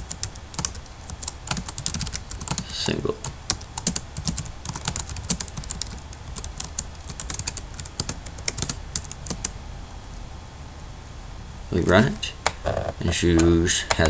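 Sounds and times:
typing on computer keyboard: 0:00.0 - 0:02.7, 0:03.5 - 0:09.5.

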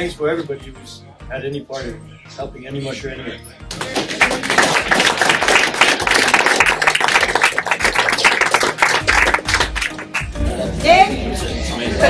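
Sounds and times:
crowd applauding: 0:03.7 - 0:10.4.

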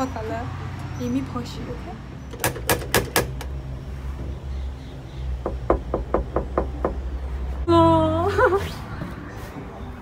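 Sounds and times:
knocking on wooden door: 0:05.4 - 0:07.1.

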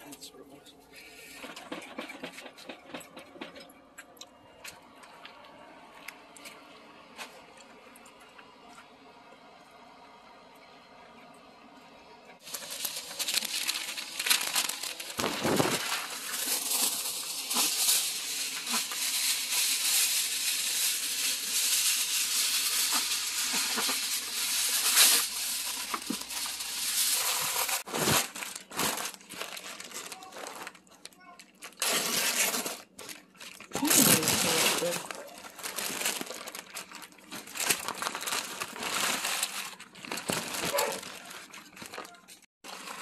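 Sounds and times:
stiff paper crinkling: 0:12.4 - 0:43.0.

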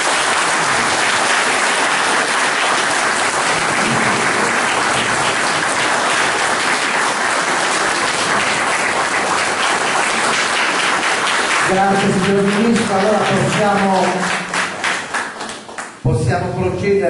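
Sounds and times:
people clapping: 0:00.0 - 0:16.2.

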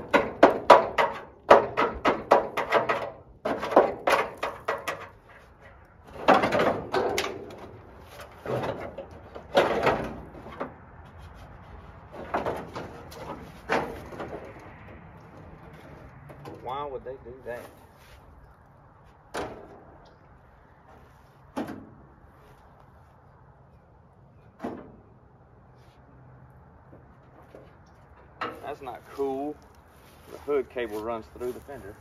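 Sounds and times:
metal fender scraping and clunking: 0:00.0 - 0:16.7, 0:27.0 - 0:31.6.

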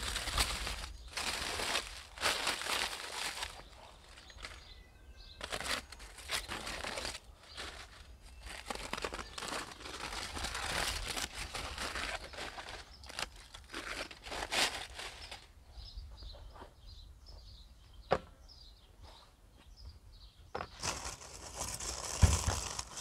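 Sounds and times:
foil crinkling: 0:00.0 - 0:15.5, 0:20.8 - 0:23.0.

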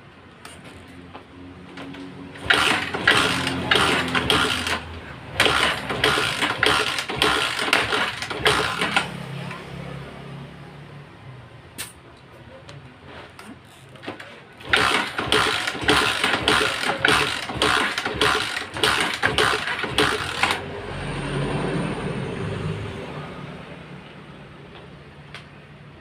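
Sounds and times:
motorcycle engine cranking: 0:01.7 - 0:09.8, 0:13.4 - 0:20.8.

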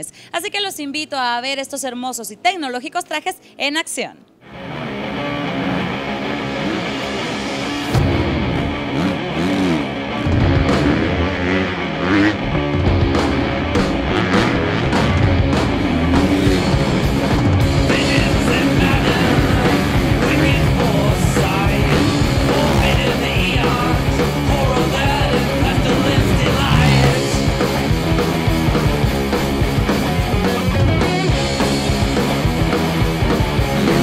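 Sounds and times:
loud rock music: 0:04.4 - 0:34.0.

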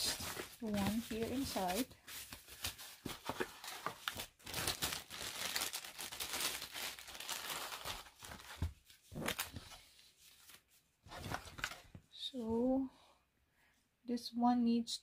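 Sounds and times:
plastic bag crinkling: 0:03.5 - 0:08.7.

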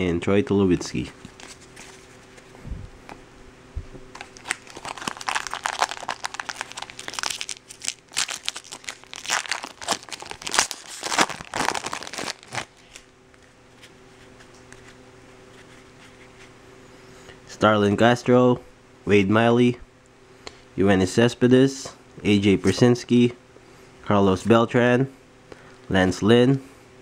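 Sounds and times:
foil wrapper crinkling: 0:01.2 - 0:02.4, 0:04.1 - 0:13.9
foil tearing: 0:04.2 - 0:13.1.

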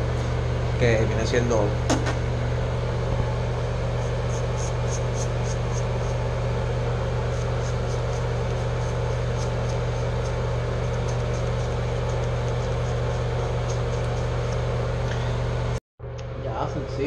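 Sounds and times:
extractor fan humming: 0:00.0 - 0:17.0
razor scratching over stubble: 0:03.9 - 0:06.3, 0:07.2 - 0:14.6.

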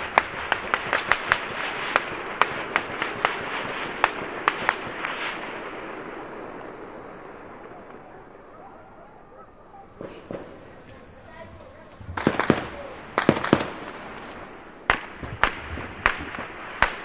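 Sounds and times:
distant gunfire with echoes: 0:00.0 - 0:17.0.

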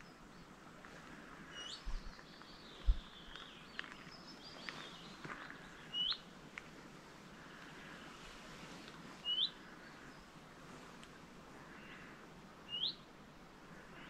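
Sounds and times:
bird chirps: 0:01.5 - 0:06.3, 0:09.2 - 0:10.3, 0:12.7 - 0:13.1.

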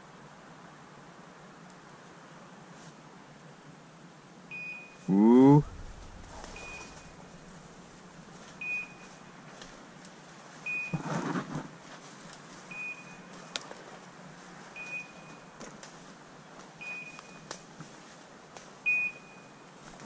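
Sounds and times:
rustle of brush: 0:01.6 - 0:03.7, 0:05.7 - 0:18.9.

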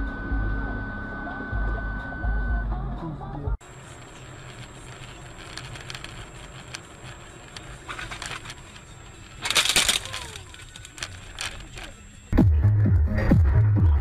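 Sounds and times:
car road noise: 0:00.0 - 0:14.0.

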